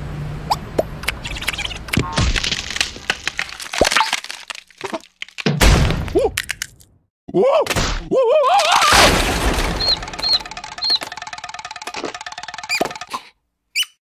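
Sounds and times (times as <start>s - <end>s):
eggshell cracking: 1.0s - 5.5s, 6.1s - 6.9s, 9.8s - 13.2s
wavering cartoon creature cry: 7.3s - 9.0s
shell bursting with loud crash: 8.8s - 10.8s
high chick chirps: 9.6s - 13.2s.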